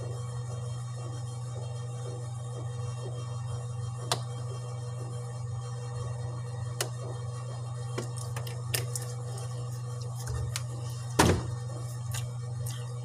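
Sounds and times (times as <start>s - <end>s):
steady low hum: 0.0s - 13.0s
plastic bottle set down thunk: 11.2s - 11.5s.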